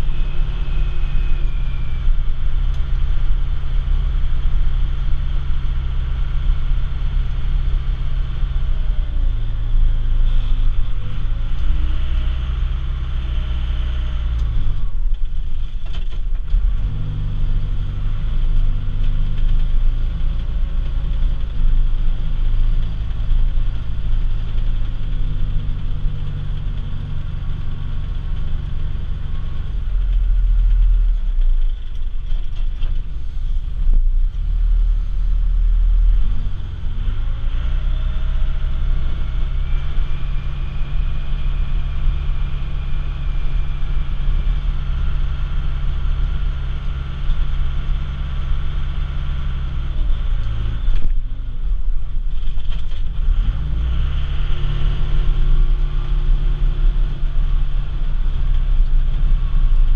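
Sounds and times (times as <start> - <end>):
diesel engine under load: 0.0 - 59.9.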